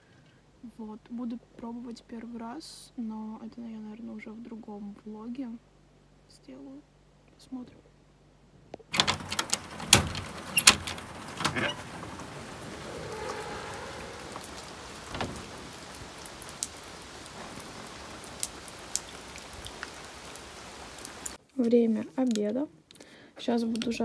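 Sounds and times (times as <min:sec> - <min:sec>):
steady rain falling: 0:08.9 - 0:21.4
water dripping: 0:09.0 - 0:21.4.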